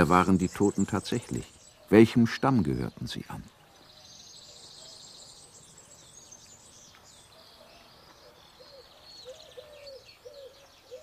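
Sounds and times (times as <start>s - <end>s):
small birds chirping: 0.0s - 11.0s
lower bird call: 3.4s - 11.0s.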